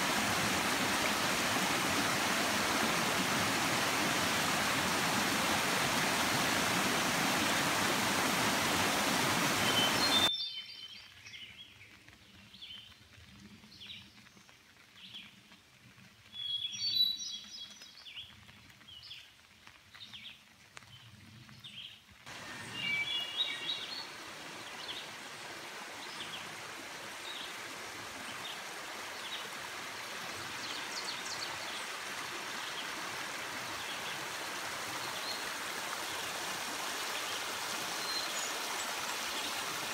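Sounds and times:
gentle brook running: 0.0 - 10.3, 11.0 - 39.9
stream rushing over rocks: 0.0 - 10.3, 22.3 - 39.9
songbirds chirping: 7.4 - 13.0, 21.0 - 29.5.

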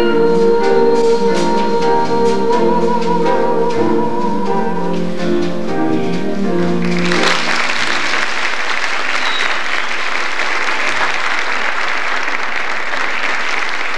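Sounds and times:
held music chord: 0.0 - 8.4
audience applause: 6.8 - 13.9.

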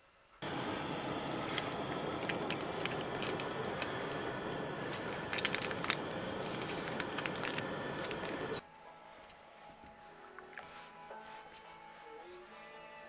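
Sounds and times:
steady hiss: 0.0 - 8.6
paper packet crinkling: 1.3 - 8.6.

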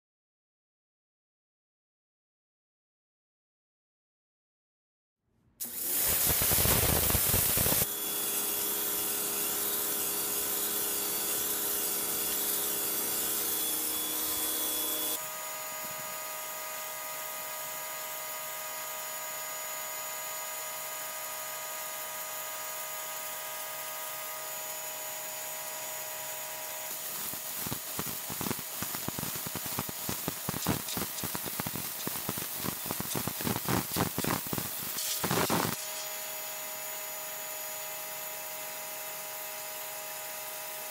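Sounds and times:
water jet hissing on concrete: 5.6 - 15.2, 26.4 - 36.3
pressure washer motor whine: 5.6 - 15.3.

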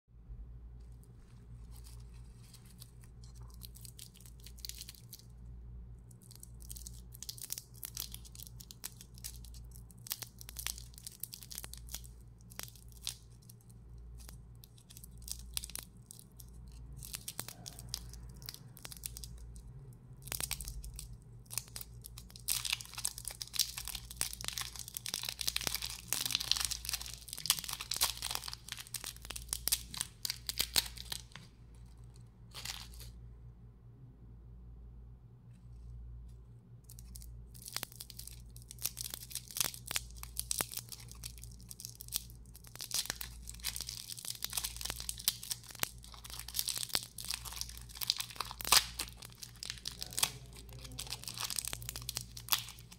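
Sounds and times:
steady low hum: 0.1 - 52.9
wrapper crinkling and tearing: 1.0 - 5.4, 6.1 - 33.2, 36.9 - 52.9.

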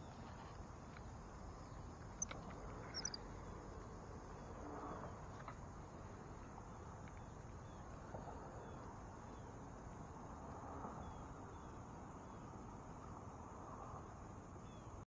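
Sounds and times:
faint short chirps: 2.2 - 3.2.

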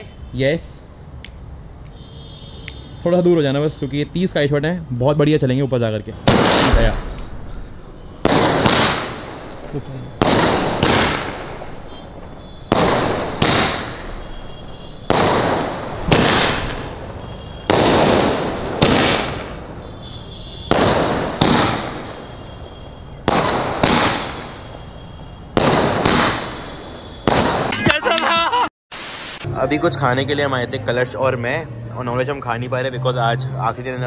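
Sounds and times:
firework bangs: 6.2 - 28.1.

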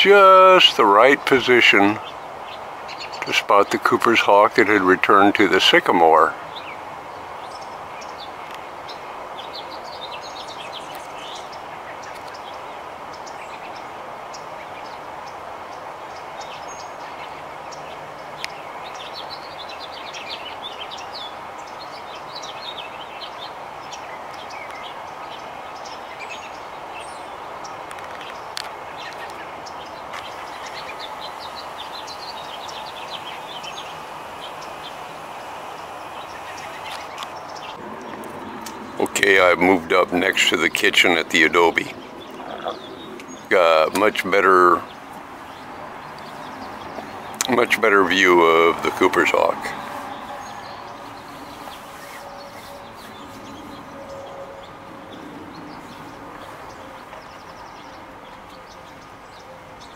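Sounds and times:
outdoor background hum: 0.0 - 59.9
songbirds chirping: 0.0 - 59.9.

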